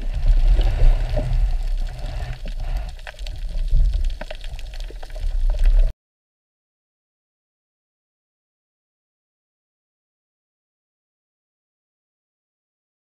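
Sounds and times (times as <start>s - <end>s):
muffled underwater water rumble: 0.0s - 5.9s.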